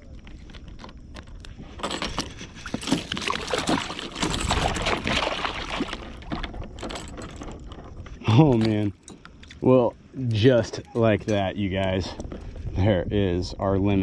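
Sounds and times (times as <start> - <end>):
fish thrashing and splashing in water: 2.3 - 7.7.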